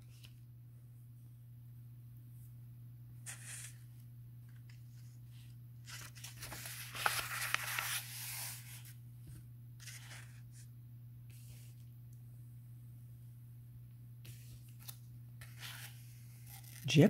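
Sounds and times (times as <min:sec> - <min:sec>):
book page rustling: 0:03.3 - 0:03.9, 0:04.5 - 0:10.7, 0:14.3 - 0:16.9.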